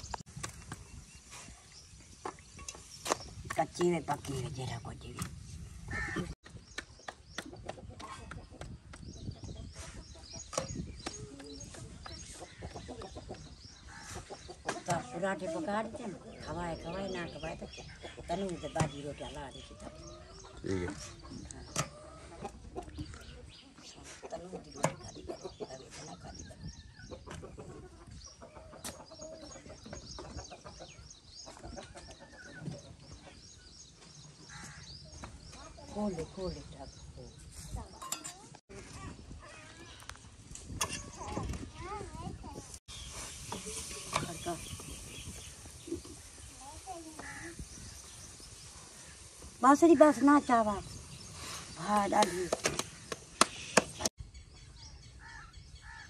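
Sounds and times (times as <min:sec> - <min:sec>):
chickens clucking: 0:06.0 - 0:34.2.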